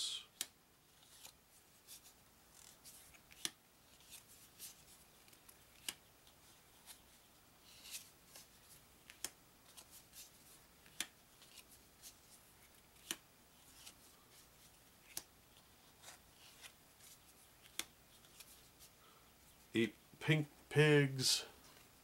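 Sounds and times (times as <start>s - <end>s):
cards sliding and tapping: 0.4s - 14.0s, 15.0s - 18.9s.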